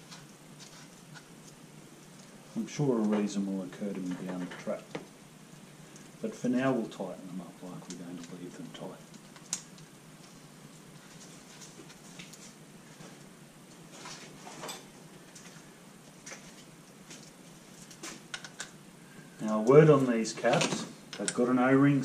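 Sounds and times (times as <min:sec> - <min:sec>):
room hiss: 0:00.0 - 0:22.0.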